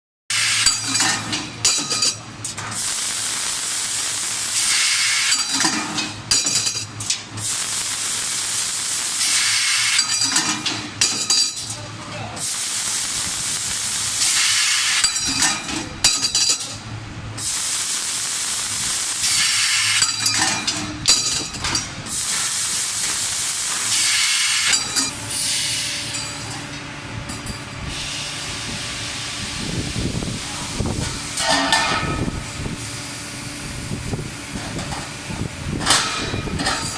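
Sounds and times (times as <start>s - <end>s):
laser cutting head hissing: 2.8s - 5.5s, 7.4s - 10.1s, 12.4s - 15.1s, 17.4s - 20.1s, 22.1s - 25.8s.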